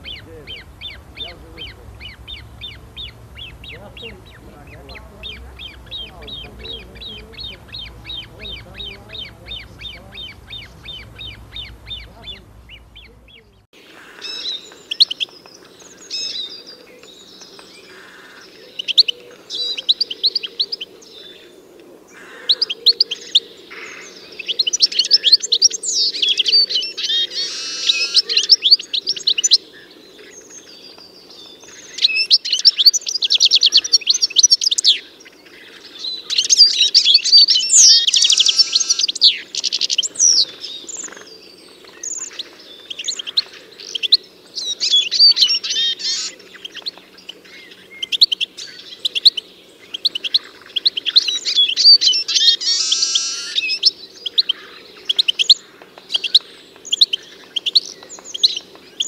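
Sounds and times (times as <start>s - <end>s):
faint low hum: 0.0s - 13.7s
songbirds chirping: 0.0s - 59.0s.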